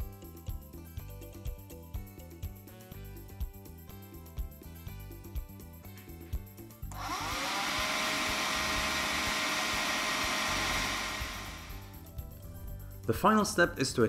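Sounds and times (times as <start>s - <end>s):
heat gun fan blowing: 6.9s - 11.9s
quiet background music: 11.7s - 14.0s.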